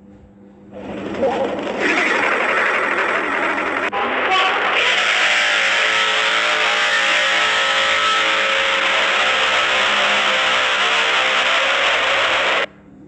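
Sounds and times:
distorted megaphone blare: 3.7s - 12.7s.

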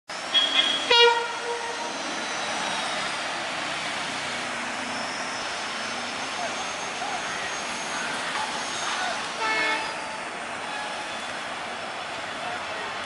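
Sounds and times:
train rumbling: 0.1s - 13.0s
locomotive horn blast: 0.3s - 2.0s, 8.9s - 11.3s.

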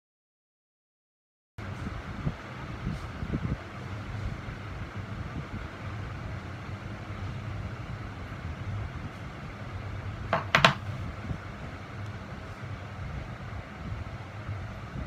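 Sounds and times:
steady low hum: 1.6s - 15.0s
metal plate clacks on table: 10.3s - 10.8s.

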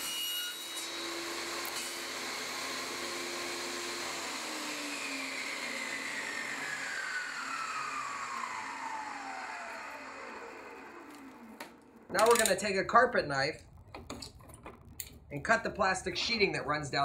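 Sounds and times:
table saw spinning down: 0.4s - 12.6s.

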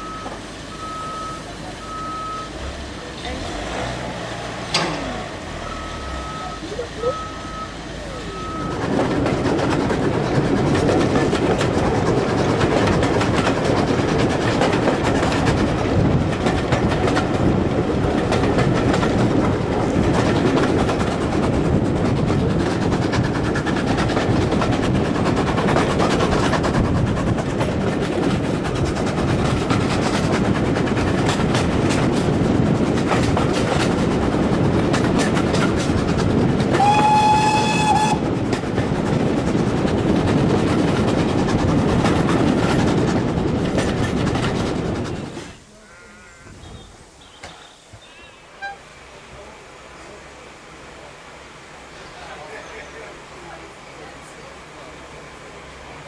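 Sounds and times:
reversing alarm beeps: 0.0s - 2.6s, 5.6s - 8.8s
train wheels on rail: 0.0s - 56.0s
rail clicks: 2.4s - 45.8s, 46.5s - 56.0s
wind rushing: 8.7s - 45.6s.

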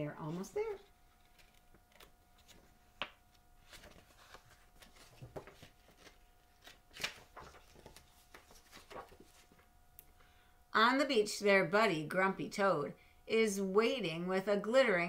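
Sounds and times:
paper pages rustling: 0.2s - 9.7s.

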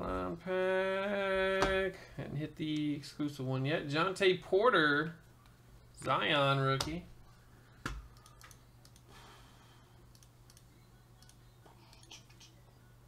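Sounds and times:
faint clicks: 10.1s - 12.5s.

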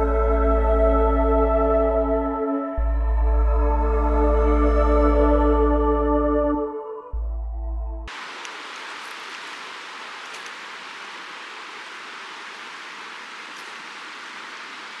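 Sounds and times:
river rushing over gravel: 8.1s - 15.0s.

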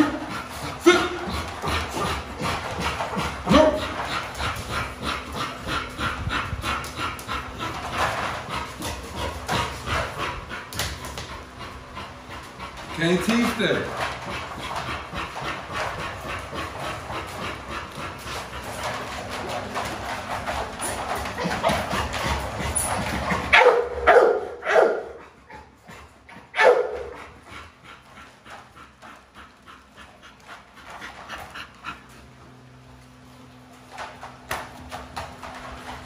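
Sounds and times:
dogs whining and whimpering: 20.6s - 23.5s
dog barks: 23.5s - 25.2s, 26.5s - 27.2s.

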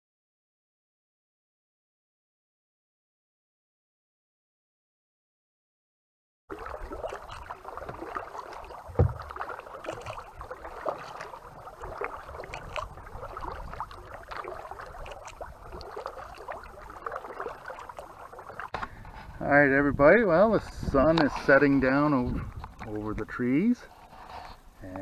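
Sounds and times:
paddle splashes and drips: 6.5s - 19.2s
water lapping against hull: 6.5s - 19.5s, 20.3s - 25.0s
thump on kayak: 8.9s - 10.1s.

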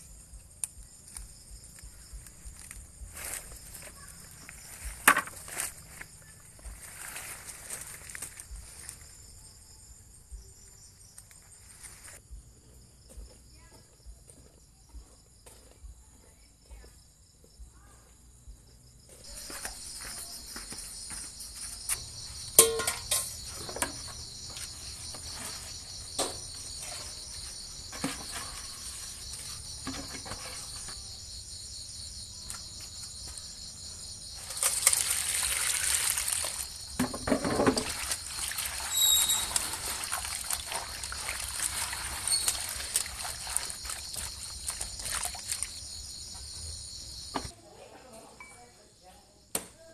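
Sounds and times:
crickets trilling: 0.0s - 14.2s, 18.4s - 49.9s
leaves rustling into steel bowl: 2.6s - 9.0s, 22.0s - 31.0s, 34.4s - 45.8s
water splashing: 34.4s - 45.9s.

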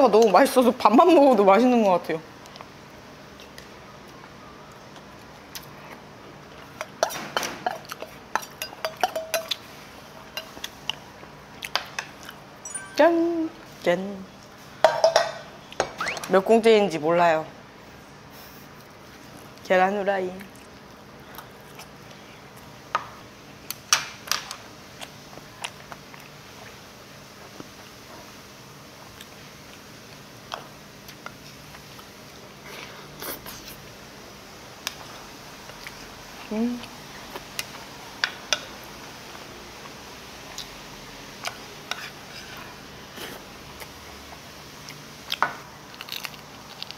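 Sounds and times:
spoon and chopsticks clinking bowls: 8.4s - 9.6s, 12.6s - 13.1s, 14.8s - 15.4s
utensils clicking on dishes: 8.4s - 9.6s.

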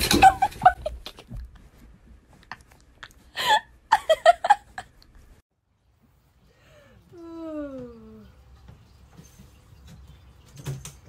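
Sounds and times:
curtain clattering: 0.0s - 0.9s
person laughing: 3.0s - 5.0s.

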